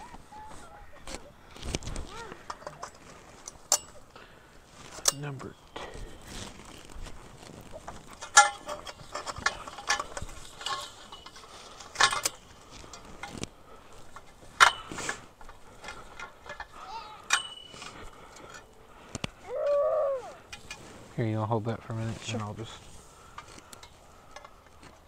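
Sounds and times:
metal tubes clinking together: 2.3s - 4.2s, 7.8s - 19.1s.

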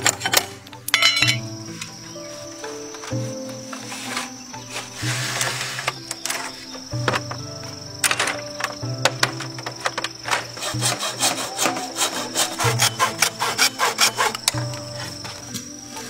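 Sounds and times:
soft instrumental music: 0.0s - 16.0s
hammer tapping bamboo slats: 8.0s - 15.3s
hacksaw cutting bamboo: 10.1s - 15.2s.

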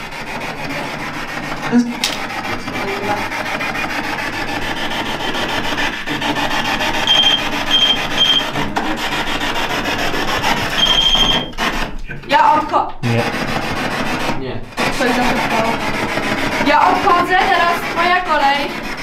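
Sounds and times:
short high beeps: 7.0s - 8.5s, 10.8s - 11.5s.

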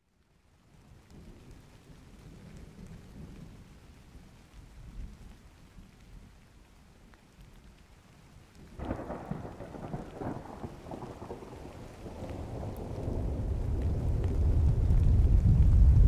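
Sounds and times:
thunder rumbling: 8.7s - 16.0s.

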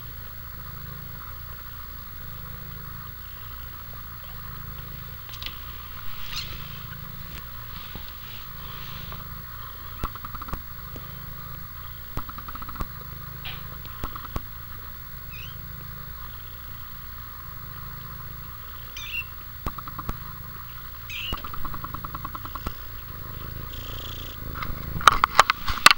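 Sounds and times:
steady low hum: 0.0s - 25.9s
kittens squeaking: 2.3s - 14.5s, 15.2s - 16.8s, 17.7s - 24.8s
small clicks: 5.2s - 5.7s, 10.0s - 11.1s, 12.2s - 14.5s, 19.0s - 20.2s, 21.1s - 22.8s, 24.6s - 25.9s.

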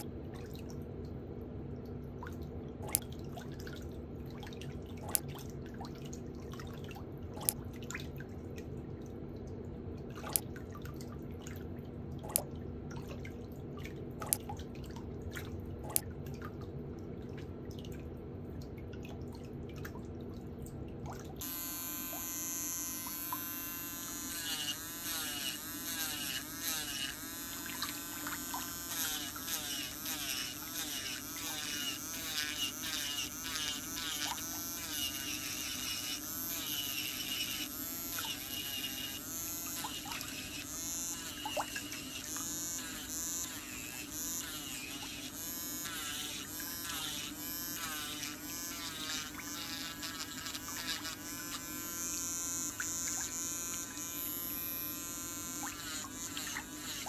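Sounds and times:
low steady hum: 0.0s - 57.0s
electric nail drill whining: 21.4s - 57.0s.

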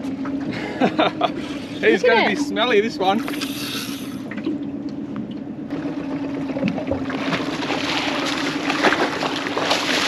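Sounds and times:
boat motor humming: 0.0s - 10.0s
fish thrashing and splashing: 6.0s - 10.0s.

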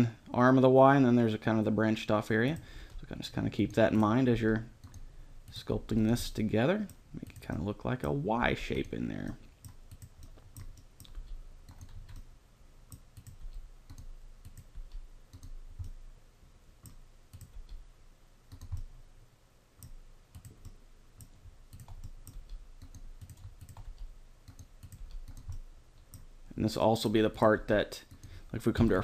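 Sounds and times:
computer mouse clicks: 4.8s - 5.0s, 9.6s - 12.3s, 12.9s - 16.0s, 16.8s - 17.8s, 18.5s - 18.9s, 19.8s - 26.3s.

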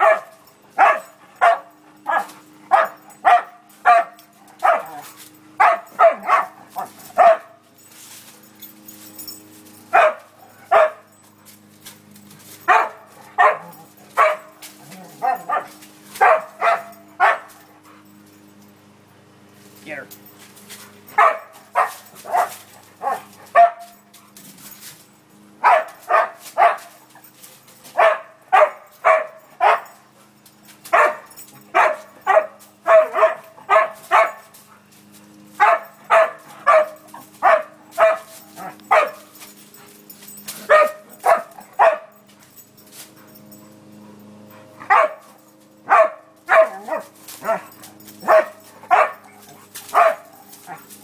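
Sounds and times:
dog barking: 0.0s - 5.0s, 5.6s - 7.6s, 9.9s - 11.1s, 12.7s - 17.5s, 21.2s - 24.0s, 25.6s - 27.0s, 28.0s - 30.0s, 30.9s - 34.5s, 35.6s - 39.3s, 40.6s - 42.2s, 44.9s - 45.3s, 45.9s - 50.8s.

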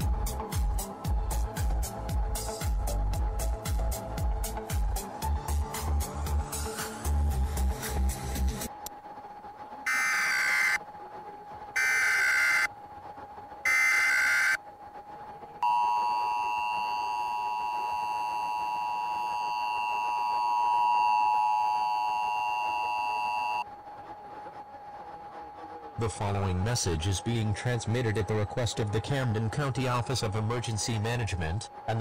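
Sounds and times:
data bursts: 9.9s - 10.8s, 11.8s - 12.7s, 13.6s - 14.6s
two-tone attention signal: 9.9s - 10.8s, 11.8s - 12.7s, 13.7s - 14.6s, 15.6s - 23.6s.

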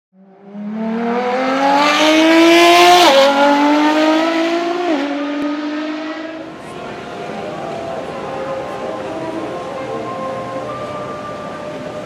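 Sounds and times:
car engine accelerating hard: 0.2s - 9.5s.

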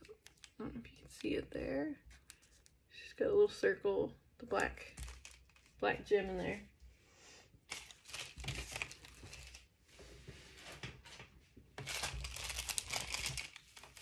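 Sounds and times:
plastic packaging crinkling: 0.0s - 1.4s, 2.1s - 2.8s, 4.5s - 6.6s, 7.7s - 9.7s, 11.8s - 14.0s.

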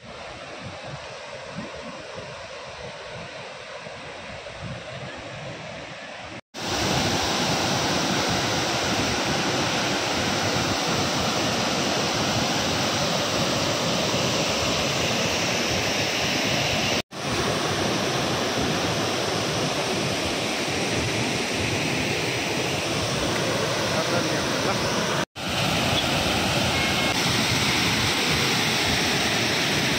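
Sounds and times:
waterfall rushing: 6.6s - 29.9s.

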